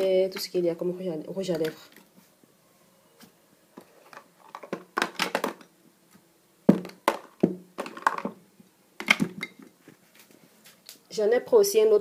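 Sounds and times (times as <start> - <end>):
plastic boxes knocking and clicking: 4.1 - 5.7, 6.7 - 8.4, 9.0 - 9.8.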